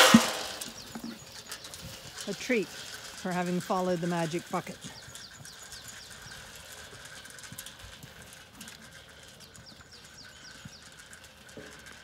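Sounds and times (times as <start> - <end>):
muzzles knocking metal trough: 0.0 - 1.2
bird singing falling notes: 0.0 - 1.9
sheep chewing and crunching feed: 0.0 - 12.0.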